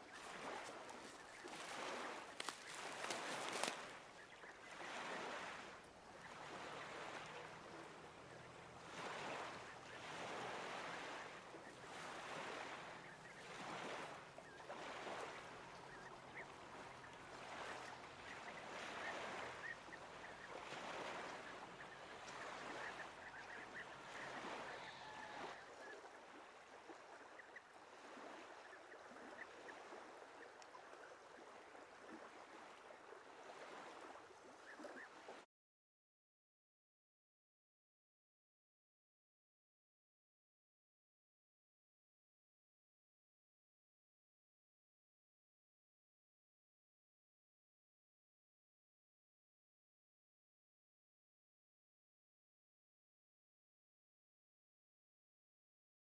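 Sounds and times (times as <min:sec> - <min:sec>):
faint waterfowl calls: 0:00.0 - 0:35.4
small waves washing on shore: 0:00.0 - 0:35.4.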